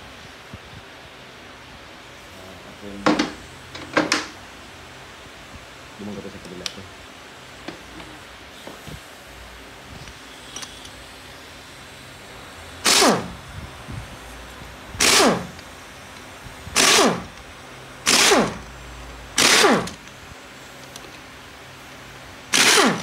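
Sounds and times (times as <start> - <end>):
air ratchet whirring: 12.8 - 13.4, 15.0 - 15.7, 16.7 - 17.4, 18.0 - 18.7, 19.4 - 20.1, 22.5 - 23.0.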